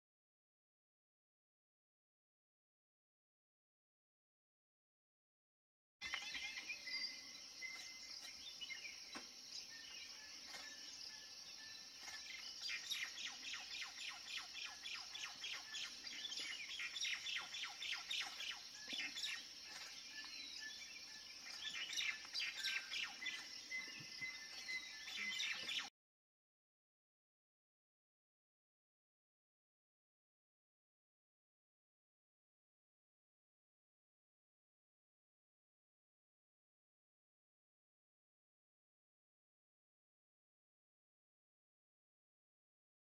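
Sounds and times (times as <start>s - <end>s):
birds chirping and singing: 6.0s - 25.9s.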